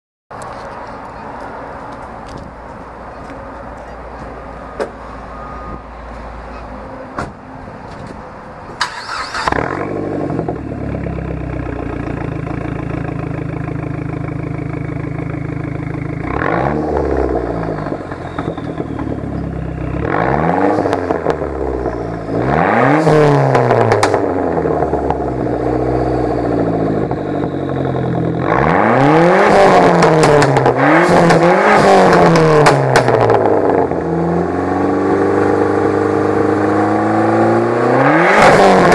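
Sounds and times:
car engine idling: 0:00.6 - 0:20.2, 0:23.6 - 0:28.5
engine revving: 0:08.8 - 0:38.9.

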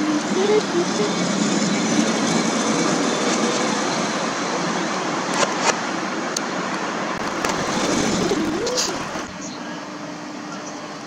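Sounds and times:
passing vehicle rushing: 0:03.8 - 0:09.5.

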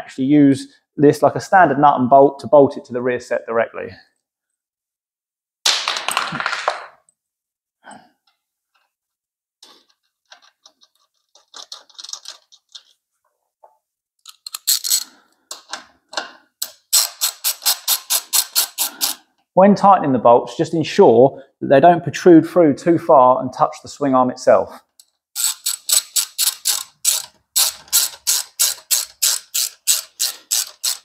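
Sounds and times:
metal parts and bolts handled: 0:09.6 - 0:13.0, 0:14.2 - 0:19.2, 0:25.0 - 0:31.0
bolt tightening clicks: 0:14.2 - 0:15.8, 0:25.0 - 0:31.0.

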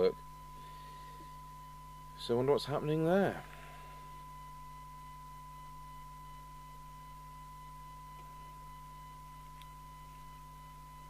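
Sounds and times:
low mains hum: 0:00.0 - 0:11.0
steady test tone through speaker: 0:00.0 - 0:11.0
faint click: 0:09.6 - 0:09.8.

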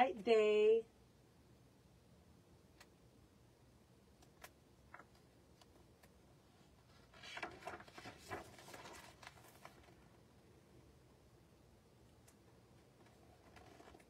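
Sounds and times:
book page turning: 0:06.8 - 0:10.0.

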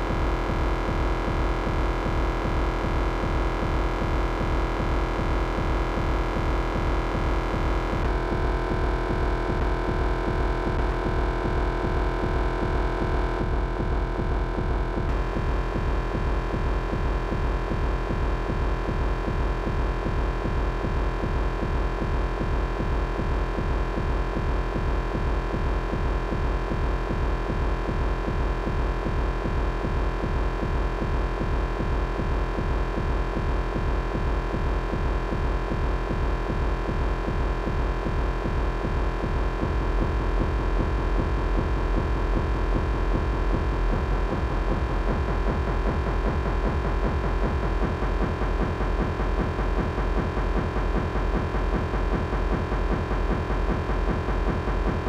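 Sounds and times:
electronic drone of stacked tones: 0:00.0 - 0:23.2
fast throbbing low pulse: 0:00.0 - 0:55.0.

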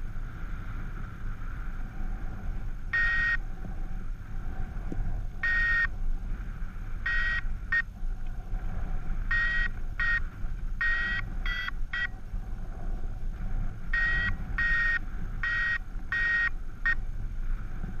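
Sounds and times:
wind rush on microphone: 0:00.0 - 0:18.0
variometer beeping: 0:02.9 - 0:03.5, 0:05.4 - 0:06.0, 0:07.0 - 0:08.0, 0:09.2 - 0:12.3, 0:13.9 - 0:17.1.

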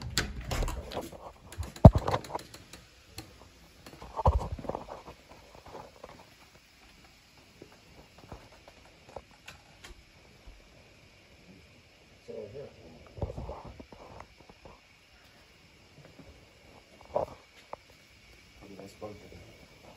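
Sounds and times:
front door opening and shutting: 0:00.0 - 0:01.9.

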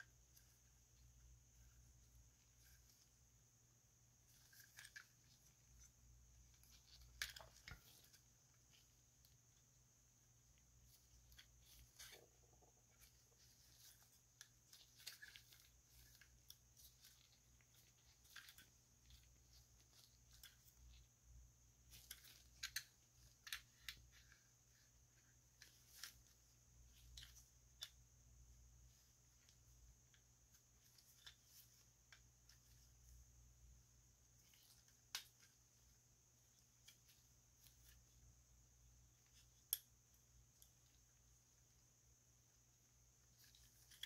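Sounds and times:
plastic toy parts clicking: 0:21.9 - 0:24.3.

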